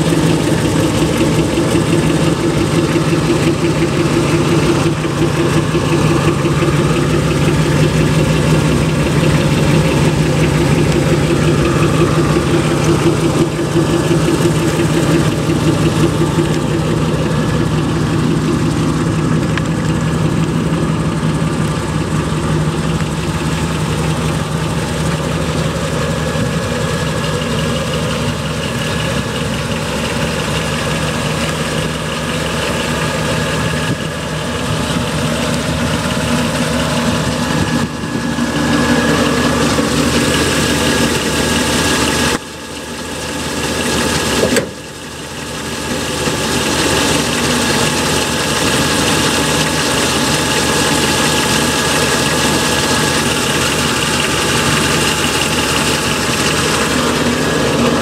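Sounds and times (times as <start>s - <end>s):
engine idling through exhaust: 0.0s - 58.0s.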